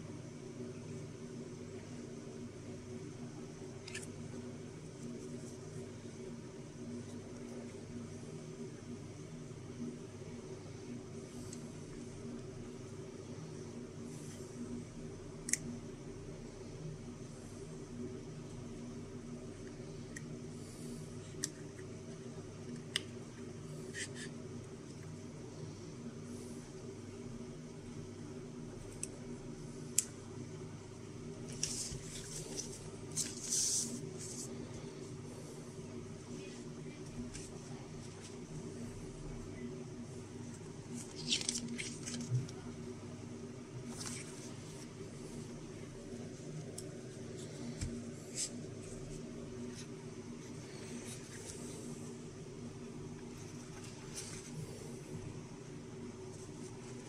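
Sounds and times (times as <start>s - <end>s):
steady low hum: 0.0s - 57.0s
paper rustling and sliding: 31.4s - 34.8s, 40.9s - 42.6s, 43.8s - 45.4s, 53.3s - 54.8s.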